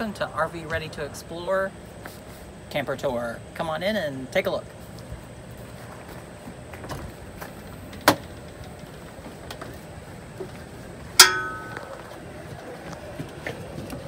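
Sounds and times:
loud metallic clank: 11.2s - 11.9s.

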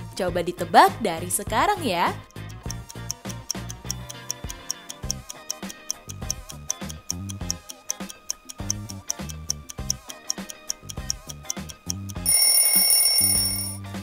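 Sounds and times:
light background music: 0.0s - 14.0s
fast clock ticking: 2.0s - 13.7s
alarm-like ring: 12.3s - 13.8s.

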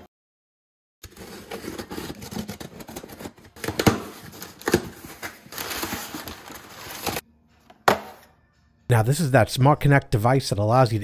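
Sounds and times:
packing paper crumpling: 1.1s - 7.2s.

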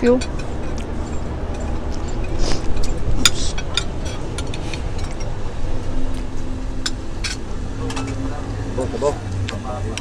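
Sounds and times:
cutlery clinking on plates: 0.0s - 5.4s
low background rumble: 0.0s - 10.0s.

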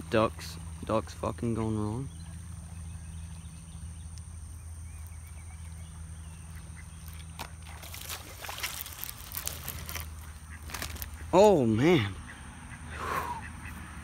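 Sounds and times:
low steady hum: 0.0s - 14.0s
water splashing: 6.8s - 11.2s.

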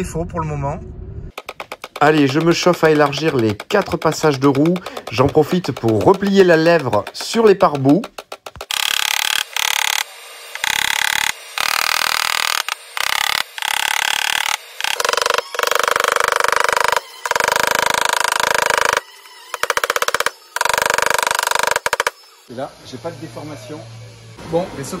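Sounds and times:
hammer tapping on steel: 1.3s - 8.7s.

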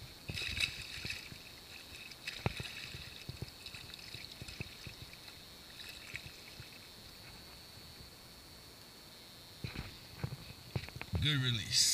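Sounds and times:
fish splashing in water: 0.3s - 7.0s.

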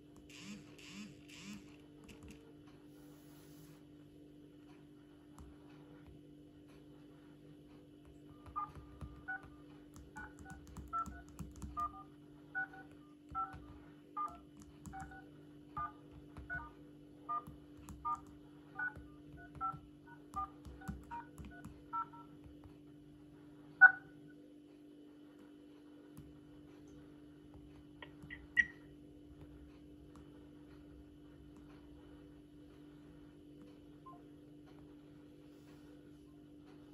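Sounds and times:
faint steady hum: 0.0s - 36.9s
phone keypad beeps: 28.0s - 28.8s.

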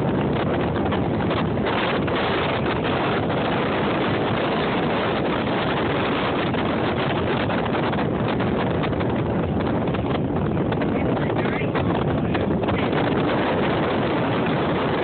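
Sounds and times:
boat moving through water: 0.0s - 15.0s
wind buffeting microphone: 0.0s - 15.0s.

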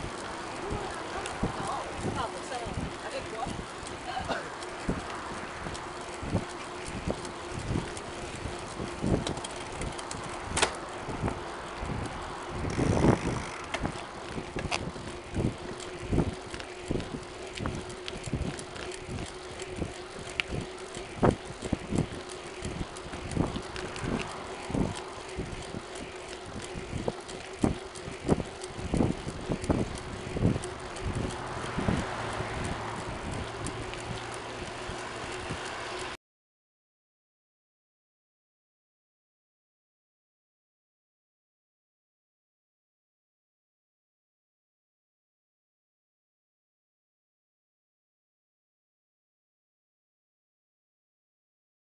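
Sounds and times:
wheels rolling on asphalt: 0.0s - 36.2s.

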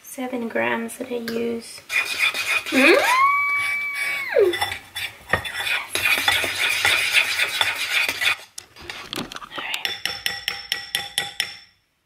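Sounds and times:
metal spoon scraping ceramic bowl: 1.9s - 3.0s, 3.6s - 11.6s
brief squeal: 2.8s - 4.6s.

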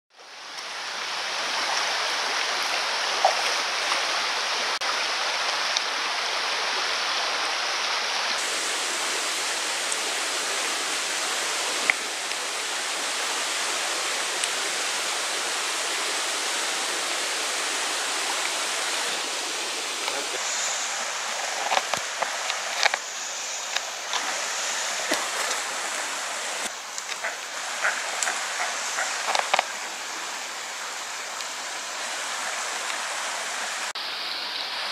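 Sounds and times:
creek water running: 0.1s - 34.9s.

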